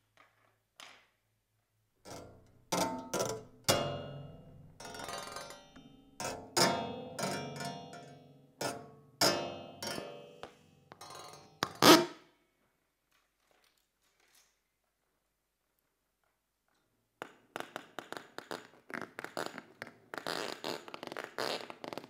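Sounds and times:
sharp metallic hits and twangs: 2.8s - 5.8s, 9.2s - 10.3s.

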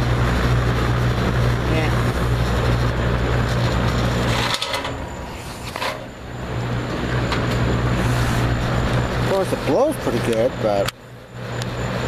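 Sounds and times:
box fan running: 0.0s - 12.0s.

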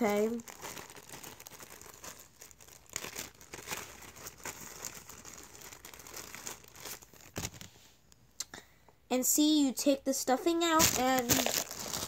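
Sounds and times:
plastic bag crinkling: 0.0s - 7.8s, 10.6s - 12.0s.

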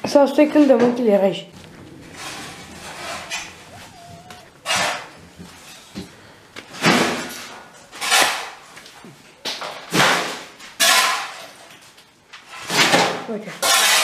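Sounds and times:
rough scraping strokes: 1.6s - 6.0s.

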